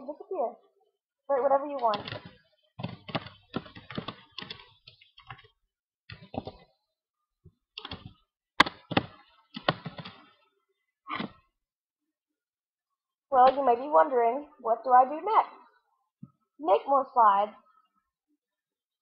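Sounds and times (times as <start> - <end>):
typing on computer keyboard: 1.8 - 5.5, 7.8 - 10.2.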